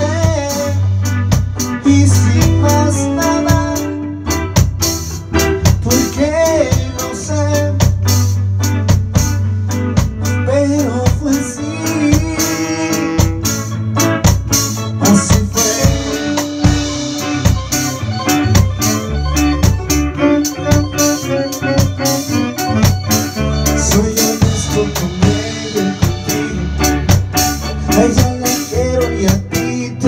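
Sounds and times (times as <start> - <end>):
saxophone melody: 0.0 - 7.7, 11.6 - 29.7
live reggae band: 0.0 - 30.0.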